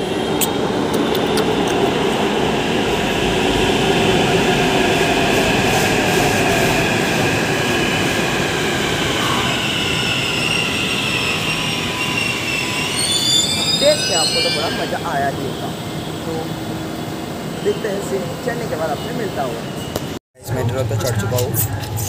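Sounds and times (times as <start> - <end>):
wheels rushing on rail: 0.0 - 22.0
train high whine falling in pitch: 8.8 - 15.7.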